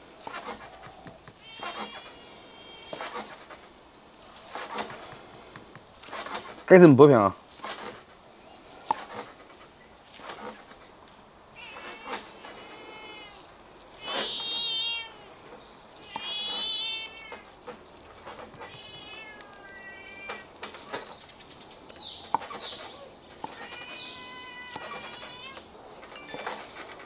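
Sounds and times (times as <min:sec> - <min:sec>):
wavering animal calls: 0:00.0 - 0:05.6, 0:11.4 - 0:27.0.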